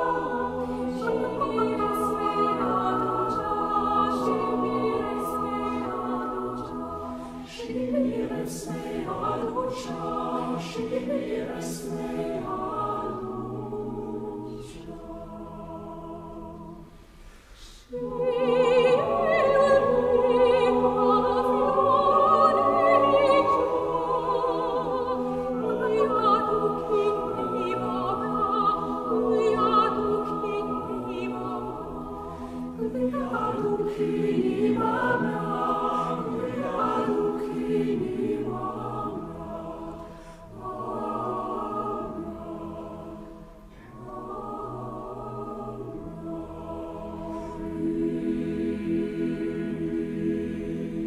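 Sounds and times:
choir singing sustained chords: 0.0 - 51.0.

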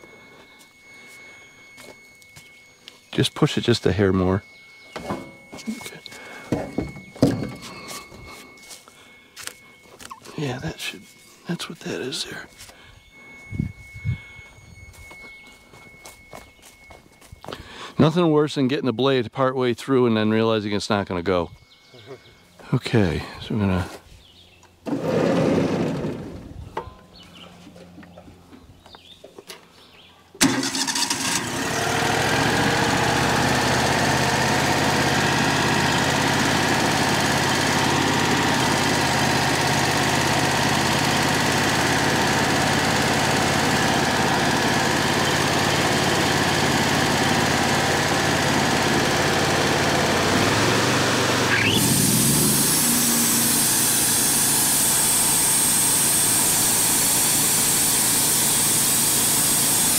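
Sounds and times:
sawmill engine running: 24.8 - 26.5, 30.4 - 59.9.

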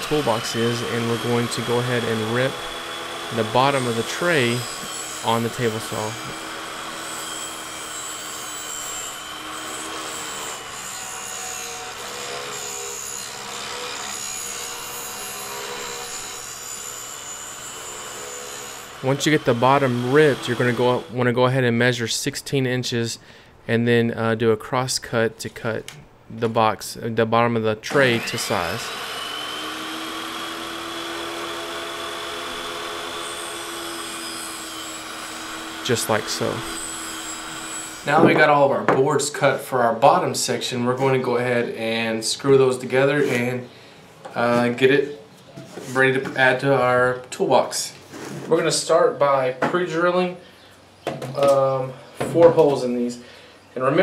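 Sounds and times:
table saw whining: 0.0 - 21.2, 27.9 - 39.0.

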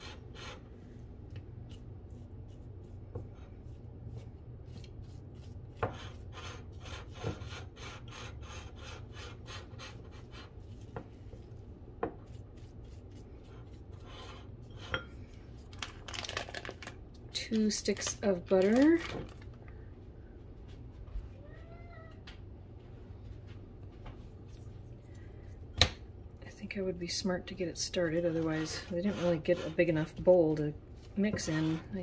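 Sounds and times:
utensil scraping in bowl: 0.0 - 15.7, 27.5 - 32.0.

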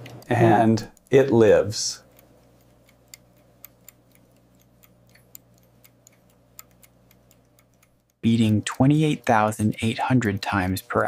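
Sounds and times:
low steady hum: 0.0 - 11.0
watch ticking: 0.0 - 11.0.

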